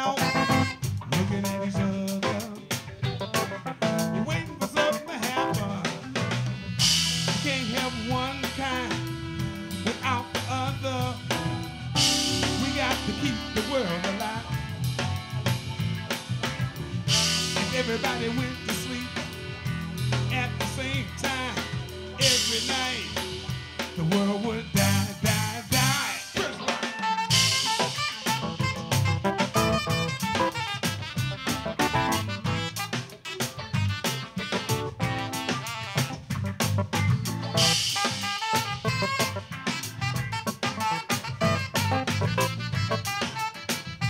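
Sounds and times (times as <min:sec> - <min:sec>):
live funk band playing: 0:00.0 - 0:44.0.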